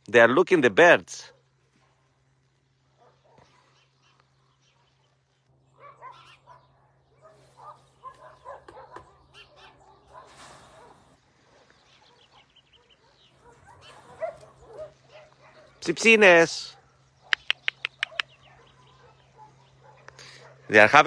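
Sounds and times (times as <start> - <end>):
faint dogs barking: 1.2 - 21.0
bird chirps: 3.2 - 10.0, 11.6 - 15.8, 17.0 - 20.1.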